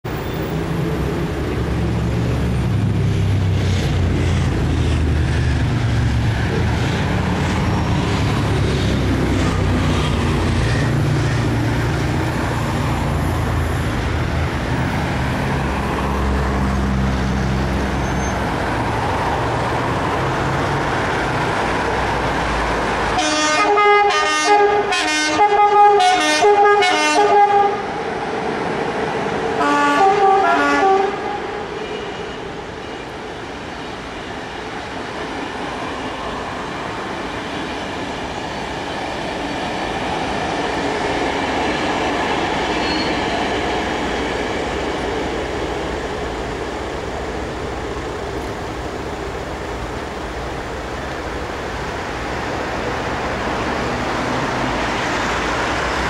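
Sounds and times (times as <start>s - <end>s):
locomotive horn blasts: 23.2s - 27.9s, 29.6s - 32.4s.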